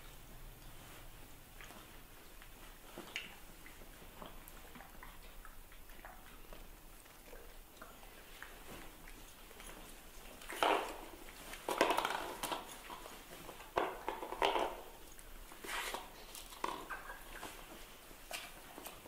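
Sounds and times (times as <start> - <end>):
puppy chewing plastic bottle: 10.2 - 19.0.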